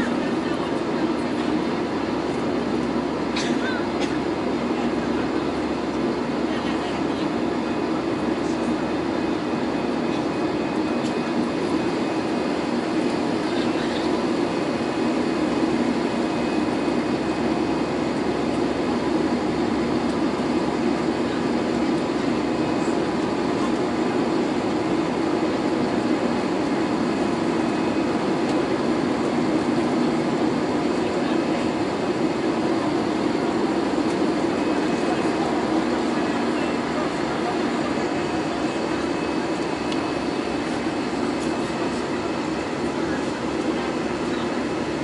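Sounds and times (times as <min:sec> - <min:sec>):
airplane cabin engine drone: 0:00.0 - 0:45.0.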